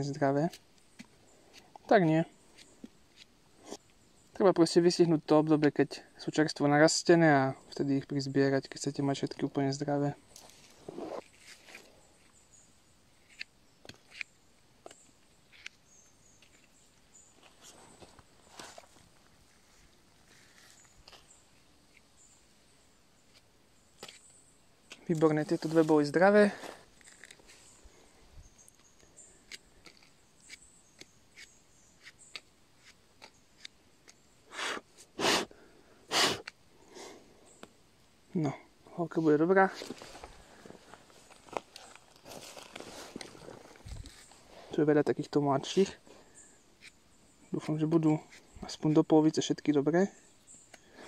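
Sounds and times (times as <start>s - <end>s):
faint clicks and rustles: 39.6s - 44.8s.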